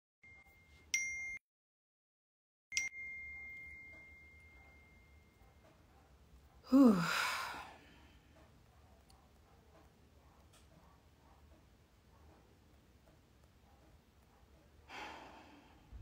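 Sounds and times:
bright ding: 0:00.2 - 0:01.4, 0:02.7 - 0:05.6
woman sighing: 0:06.7 - 0:08.2, 0:14.9 - 0:15.8.

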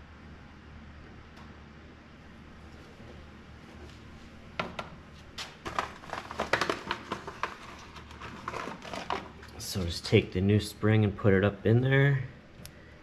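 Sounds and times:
packaging crinkling and rustling: 0:05.3 - 0:09.9.

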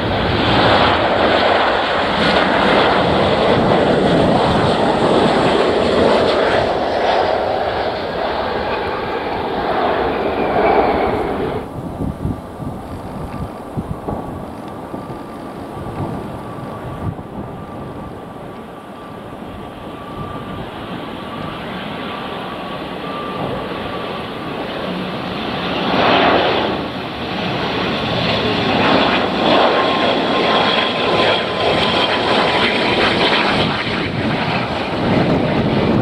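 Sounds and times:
steady engine whine: 0:00.0 - 0:36.0
turboprop airliner engines: 0:00.0 - 0:36.0.

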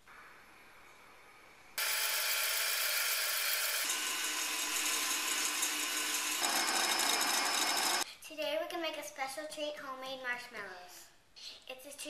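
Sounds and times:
small electric motor whirring: 0:01.8 - 0:08.0.

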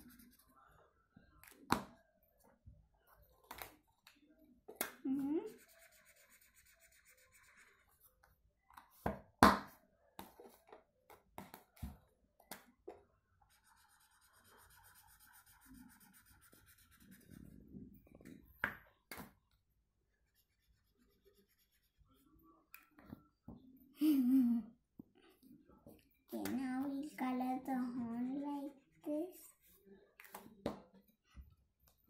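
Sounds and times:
marker scratching on paper: 0:00.0 - 0:00.5, 0:05.5 - 0:08.1, 0:13.5 - 0:17.6, 0:20.1 - 0:22.2.

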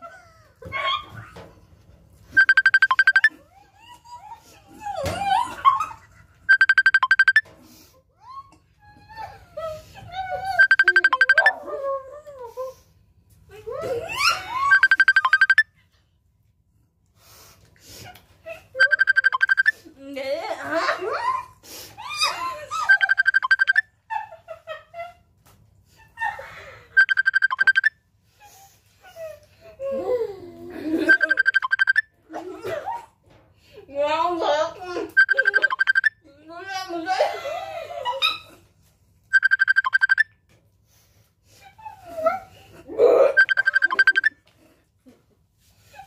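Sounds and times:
rapid high beeps: 0:02.4 - 0:03.3, 0:06.5 - 0:07.4, 0:10.6 - 0:11.5, 0:14.7 - 0:15.6, 0:18.8 - 0:19.7, 0:22.9 - 0:23.8, 0:27.0 - 0:27.9, 0:31.1 - 0:32.0, 0:35.2 - 0:36.1, 0:39.3 - 0:40.3, 0:43.4 - 0:44.4.

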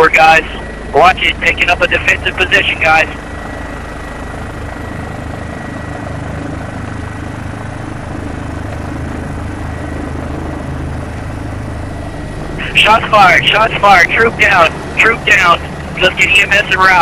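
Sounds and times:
helicopter rotor and engine: 0:00.0 - 0:17.0
thin high whine: 0:12.5 - 0:17.0.

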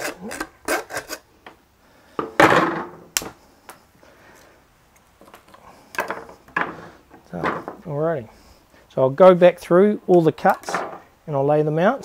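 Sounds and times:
hand saw on cutting board: 0:00.0 - 0:01.2
loud thud: 0:02.4 - 0:03.1.

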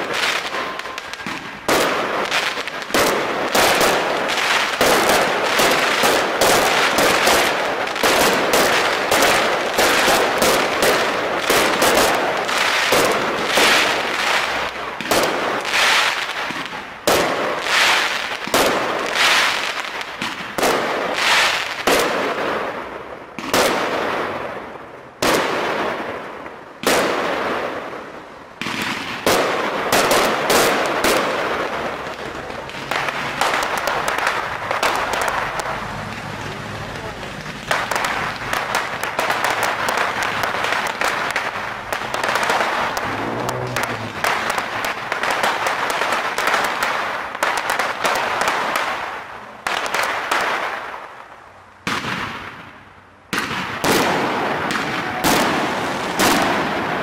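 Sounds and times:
fireworks bangs: 0:00.0 - 0:57.0
fireworks crackling: 0:00.0 - 0:57.0.

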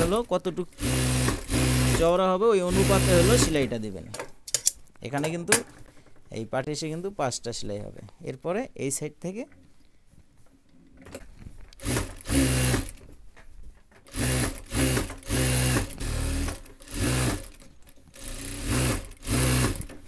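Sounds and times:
sewing machine stitching: 0:00.0 - 0:03.8, 0:11.8 - 0:13.0, 0:14.0 - 0:20.0.

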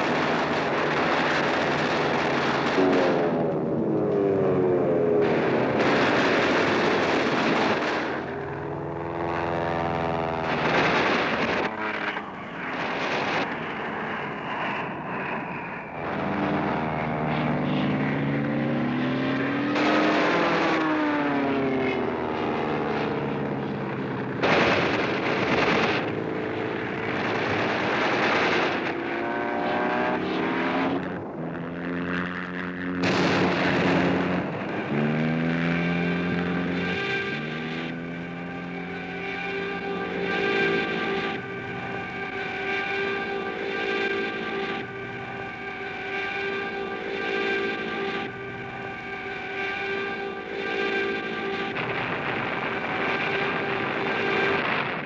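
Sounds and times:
propeller plane engine droning: 0:00.0 - 0:55.0
machine-gun fire: 0:05.3 - 0:08.2, 0:24.4 - 0:26.1.

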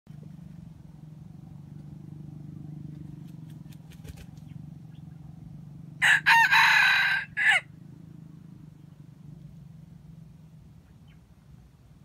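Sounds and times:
low motor hum: 0:00.1 - 0:06.1.

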